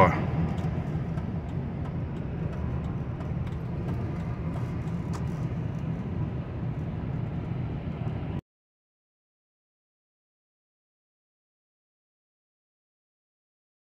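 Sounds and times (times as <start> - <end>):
car road and engine rumble: 0.0 - 8.4.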